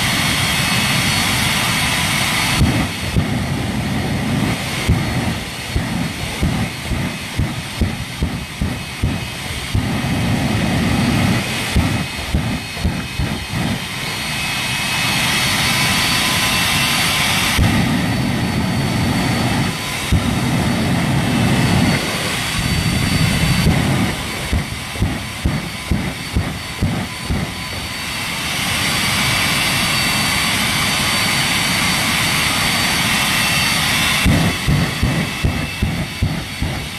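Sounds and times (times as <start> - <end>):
jet engine roaring: 0.0 - 36.9
low rumbling pulses: 2.5 - 14.5, 17.6 - 28.2, 34.2 - 36.9.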